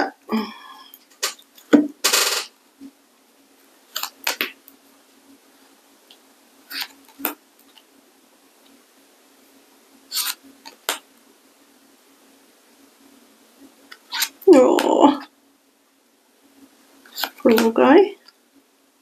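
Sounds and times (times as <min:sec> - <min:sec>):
chair squeaking: 0:06.7 - 0:07.4, 0:10.1 - 0:10.8.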